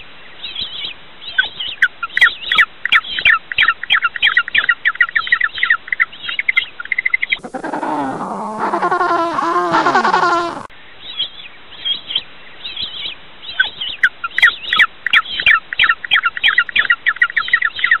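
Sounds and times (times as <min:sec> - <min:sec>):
penguin call: 0:07.4 - 0:10.7.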